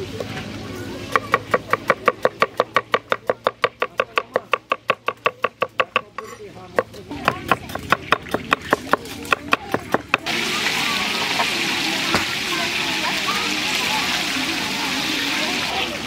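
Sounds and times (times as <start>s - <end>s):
knife chopping onions on board: 1.1s - 10.3s.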